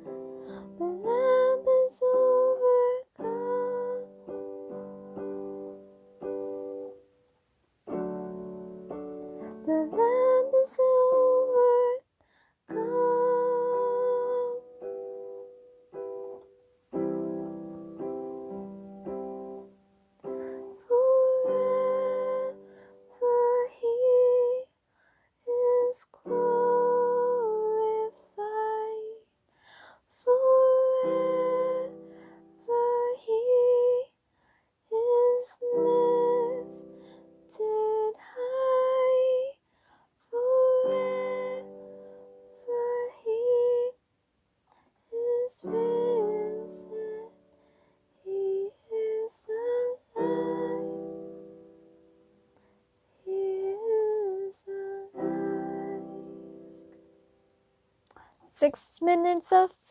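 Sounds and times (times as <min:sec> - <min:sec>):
woman singing: 0:00.0 - 0:07.0, 0:09.3 - 0:12.1, 0:12.7 - 0:15.1, 0:20.2 - 0:24.7, 0:25.4 - 0:29.3, 0:30.1 - 0:34.2, 0:34.9 - 0:39.6, 0:40.2 - 0:44.0, 0:45.1 - 0:47.5, 0:48.2 - 0:51.6, 0:53.2 - 0:56.9, 0:58.1 - 0:59.9
piano chords: 0:00.0 - 0:07.1, 0:07.8 - 0:11.9, 0:12.7 - 0:24.3, 0:49.6 - 0:52.6, 0:53.8 - 0:57.6.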